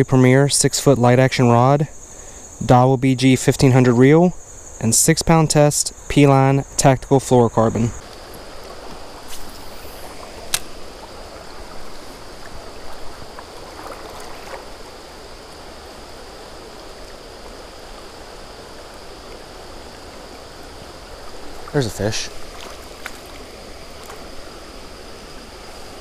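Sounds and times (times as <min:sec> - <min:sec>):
high insect chirr: 0:00.0 - 0:26.0
creek water running over rocks: 0:07.6 - 0:26.0
sharp click: 0:10.5 - 0:10.7.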